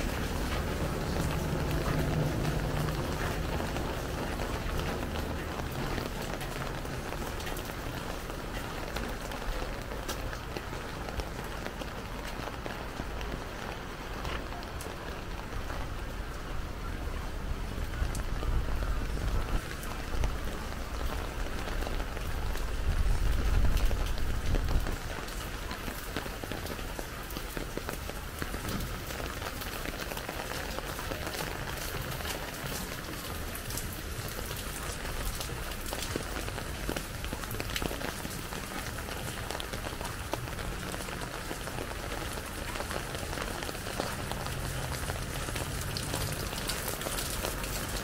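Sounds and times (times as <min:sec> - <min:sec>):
low rumble: 0:00.0 - 0:06.2
rain on hard surfaces: 0:00.0 - 0:48.0.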